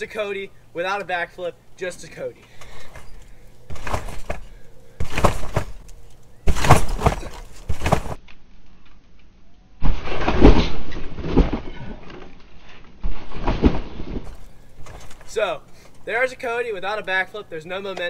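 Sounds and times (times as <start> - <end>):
trampoline springs thudding: 2.6 - 8.2, 9.8 - 15.4.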